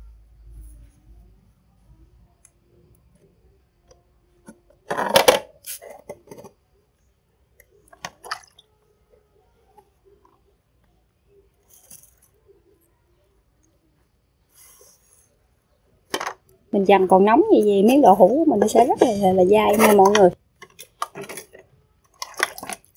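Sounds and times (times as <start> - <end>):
quiet handling of objects: 0.0 - 5.1, 5.7 - 22.9
kitchenware clattering: 17.6 - 21.6.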